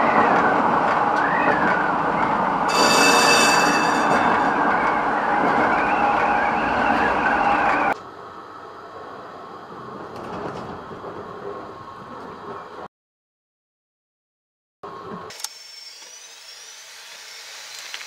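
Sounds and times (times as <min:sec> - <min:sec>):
tram rolling on rails: 0:00.0 - 0:12.9
high-pitched ringing: 0:02.7 - 0:04.8.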